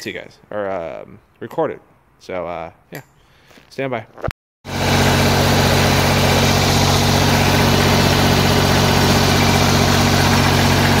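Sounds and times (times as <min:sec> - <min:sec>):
diesel generator engine running: 0:04.7 - 0:11.0.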